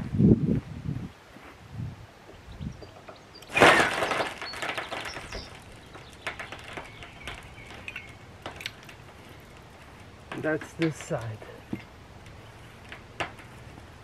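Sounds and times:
container settling onto gravel: 3.5 - 11.9.

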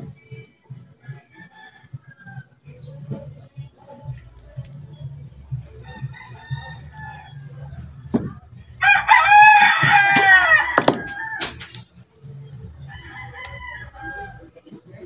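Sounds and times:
rooster crowing: 5.8 - 7.7, 8.8 - 11.6, 12.9 - 14.5.

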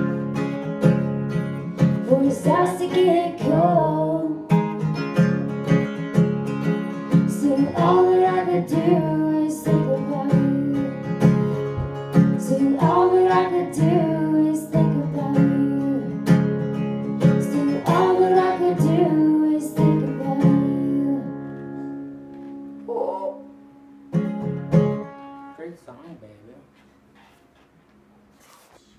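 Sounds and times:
acoustic guitar strumming: 0.0 - 27.5
person singing: 2.0 - 4.6, 7.3 - 11.1, 12.4 - 16.3, 17.4 - 21.4.

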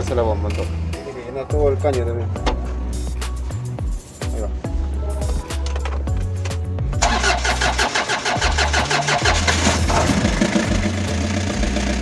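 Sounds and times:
diesel engine starting and idling: 7.0 - 12.0.

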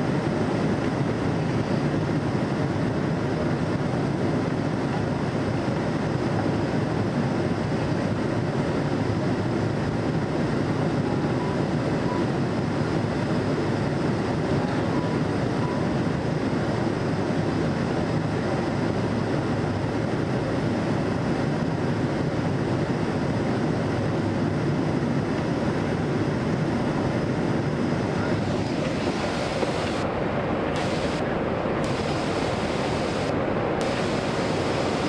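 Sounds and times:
aircraft engine noise: 0.0 - 35.0
rushing air in aircraft cabin: 0.0 - 35.0.

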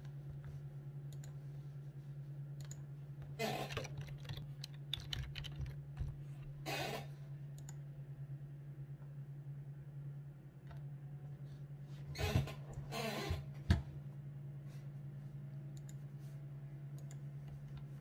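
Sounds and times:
steady low hum: 0.0 - 18.0
computer handling clicks: 2.6 - 2.8.

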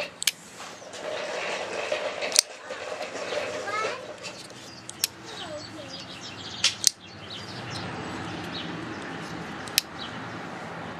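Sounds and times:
folding knife blade clicking: 9.6 - 9.9.

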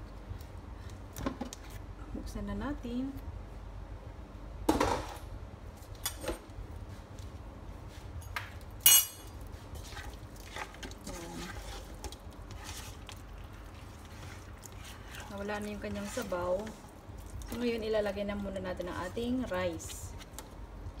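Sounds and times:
low steady hum: 0.0 - 21.0
utensils clattering against pot: 8.9 - 9.3.

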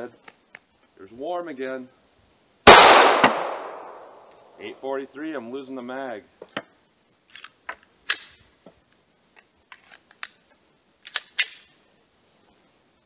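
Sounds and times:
pistol metallic clicks and clacks: 11.0 - 11.7.

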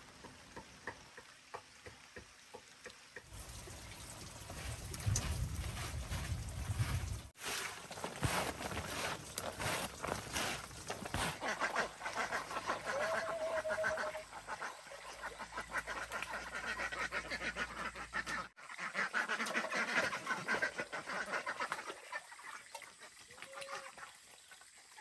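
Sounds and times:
ducks quacking and gabbling: 11.1 - 24.7
drawn-out duck call: 11.2 - 14.7.

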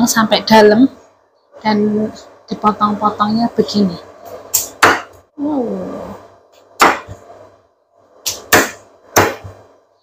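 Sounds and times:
cleaver chopping on wooden board: 4.6 - 5.1, 6.8 - 7.2, 8.3 - 9.5.

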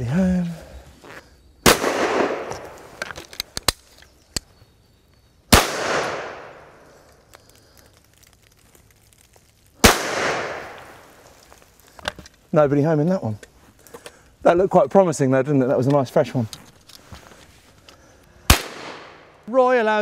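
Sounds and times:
rolling echo through woods: 0.0 - 20.0
shotgun shots: 1.6 - 2.8, 5.5 - 6.7, 9.8 - 10.9, 18.5 - 19.2.

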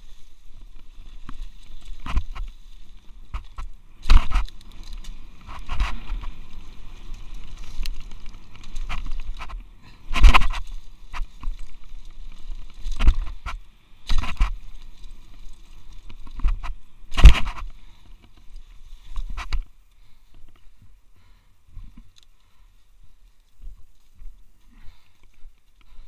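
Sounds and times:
bike jolting over bumps: 0.0 - 20.8
bike rattling: 0.0 - 26.0.

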